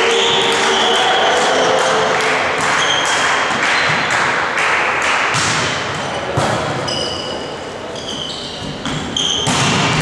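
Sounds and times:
echoing hall din: 0.0 - 6.9.

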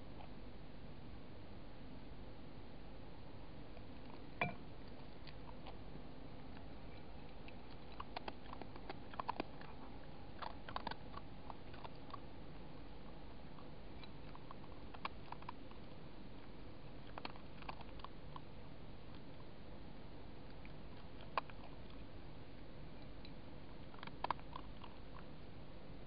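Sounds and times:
fox crunching food: 3.7 - 19.6, 20.4 - 25.4.

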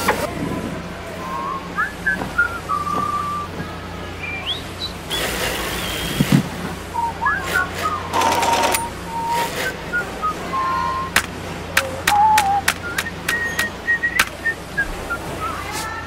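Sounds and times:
low machinery hum: 0.0 - 16.0
people whistling a tune: 1.1 - 16.0
machine hiss: 5.1 - 6.5
sharp clicks: 11.2 - 14.4.

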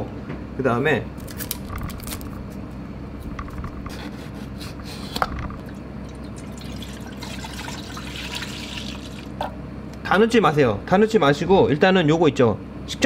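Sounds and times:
milk pouring into metal pot: 5.7 - 9.4.

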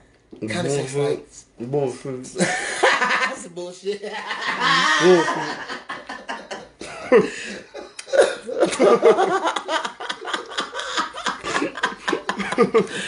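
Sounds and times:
men laughing hard: 2.4 - 3.4, 4.1 - 13.0
person coughing: 6.9 - 8.8.

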